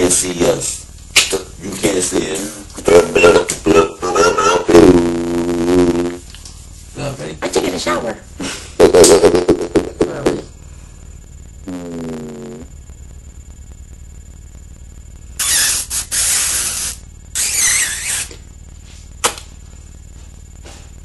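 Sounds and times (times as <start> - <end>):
low electrical hum: 0.0 - 21.0.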